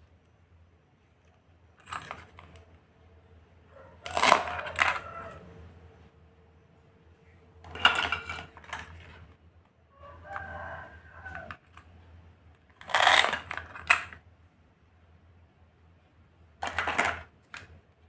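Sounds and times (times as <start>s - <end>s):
plastic pieces clacking: 1.8s - 2.7s, 4.0s - 5.1s, 7.6s - 9.4s, 12.6s - 14.2s, 16.6s - 17.8s
hook-and-loop fastener tearing: 4.0s - 5.1s, 12.8s - 14.2s.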